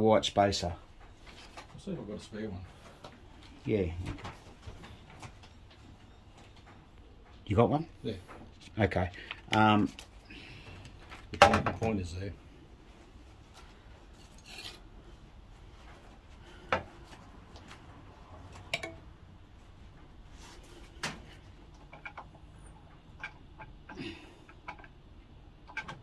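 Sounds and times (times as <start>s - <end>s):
clicks and metallic knocks: 18.7s - 19.1s.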